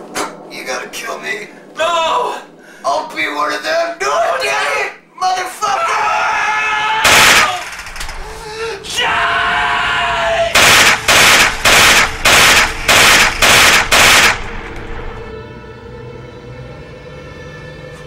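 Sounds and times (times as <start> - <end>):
long scream: 5.8 - 7.6, 8.3 - 10.6
gunshots: 7.0 - 8.2, 10.6 - 14.7.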